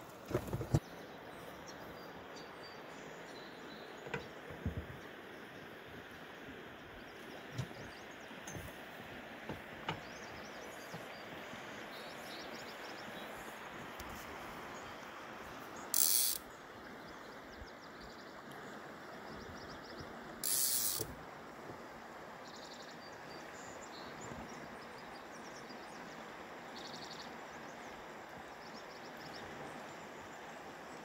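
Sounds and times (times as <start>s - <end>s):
river flowing: 0.0s - 31.0s
loud high hiss: 16.0s - 16.4s, 20.4s - 21.1s.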